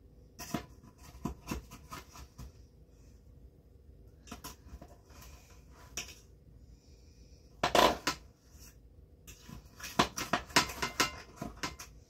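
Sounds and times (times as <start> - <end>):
dishes and cutlery clattering: 9.3 - 12.0.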